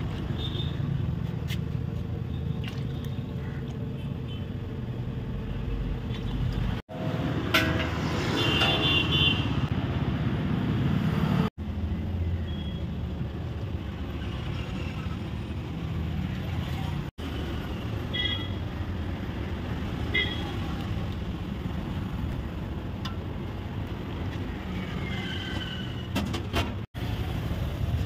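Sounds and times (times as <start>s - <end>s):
rumble of passing vehicles: 0.0s - 28.0s.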